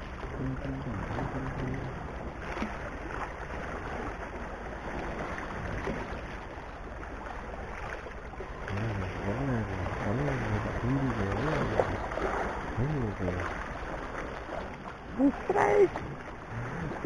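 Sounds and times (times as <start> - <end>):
small waves washing on rocks: 0.0 - 17.0.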